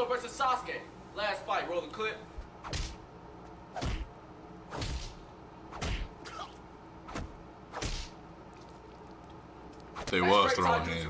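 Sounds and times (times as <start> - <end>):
heavy punch impacts: 2.6 - 3.0, 3.8 - 4.1, 4.7 - 6.4, 7.1 - 8.2
punch swishes: 2.6 - 3.0, 3.8 - 4.1, 4.7 - 6.4, 7.1 - 8.2.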